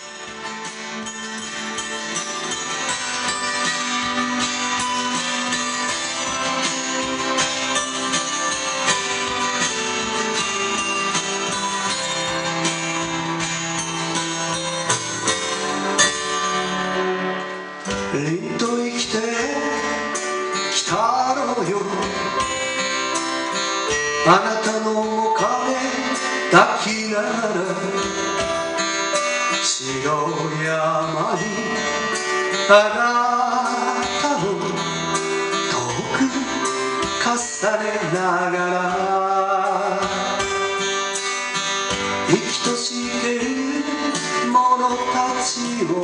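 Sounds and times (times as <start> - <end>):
acoustic guitar playing: 0.0 - 46.0
man singing: 17.9 - 23.0, 23.8 - 28.8, 29.5 - 41.0, 42.2 - 46.0.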